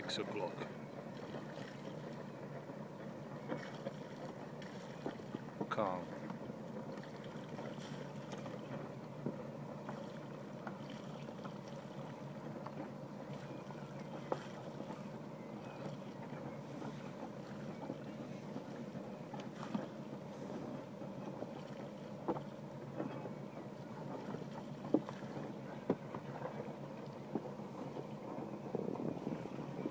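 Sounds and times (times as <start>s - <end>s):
steady low running hum: 0.0s - 29.9s
water moving along hull: 0.0s - 29.9s.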